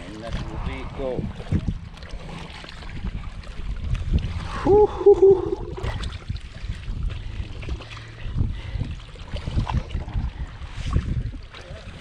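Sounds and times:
wind on microphone: 0.0s - 12.0s
fish thrashing and splashing: 1.2s - 12.0s
person exclaiming: 4.6s - 5.7s.

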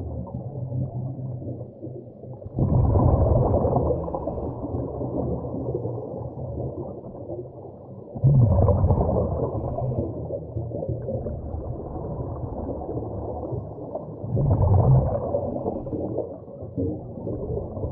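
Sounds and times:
exhaled bubbles gushing: 0.0s - 17.9s
muffled underwater rumble: 0.0s - 17.9s.

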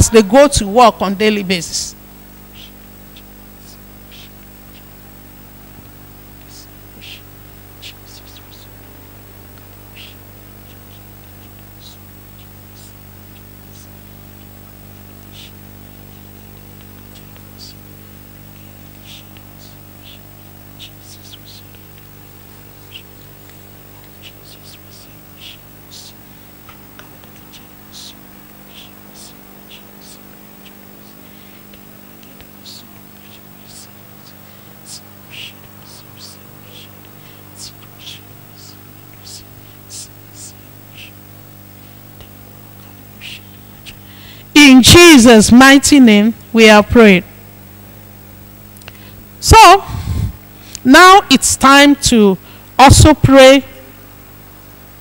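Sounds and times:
electrical hum and hiss: 0.0s - 55.0s
person whispering: 6.4s - 8.8s, 19.0s - 26.3s, 26.9s - 41.2s, 43.2s - 44.0s, 49.4s - 53.6s.

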